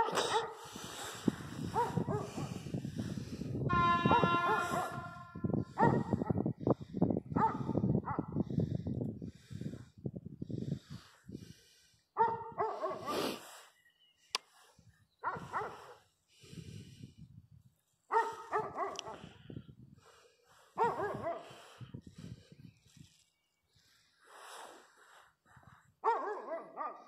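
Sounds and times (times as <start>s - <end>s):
dog barking: 0.0s - 0.6s, 1.7s - 2.5s, 4.1s - 6.4s, 7.4s - 8.3s, 12.2s - 13.1s, 15.2s - 16.0s, 18.1s - 19.3s, 20.8s - 21.6s, 26.0s - 27.0s.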